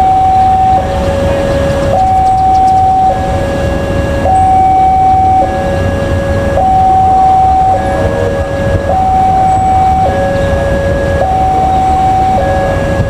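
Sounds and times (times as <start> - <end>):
two-tone warning alarm: 0.0 - 13.0.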